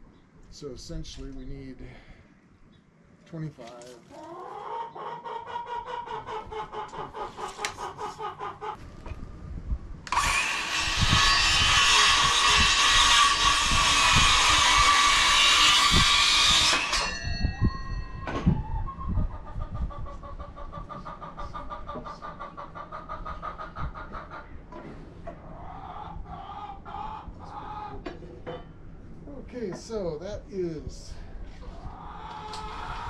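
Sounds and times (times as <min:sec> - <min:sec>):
hens clucking: 0:03.7 - 0:08.8, 0:18.4 - 0:28.4, 0:31.6 - 0:33.0
power saw cutting wood: 0:10.1 - 0:17.2, 0:32.4 - 0:33.0
saw blade ringing: 0:16.7 - 0:18.2.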